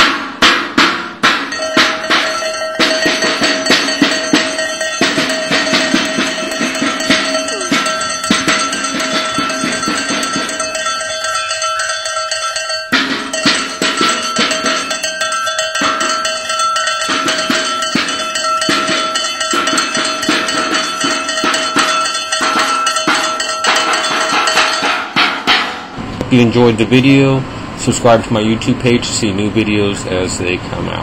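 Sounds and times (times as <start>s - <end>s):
metal bell shaken: 1.4s - 25.5s.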